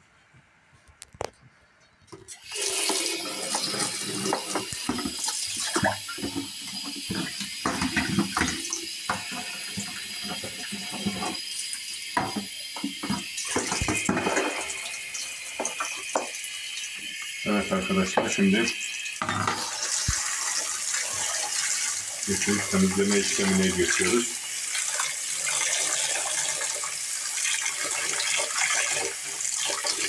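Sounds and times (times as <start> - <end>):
tap water running: 2.1 - 30.0
water splashing on plastic bowl: 12.1 - 14.9, 19.2 - 30.0.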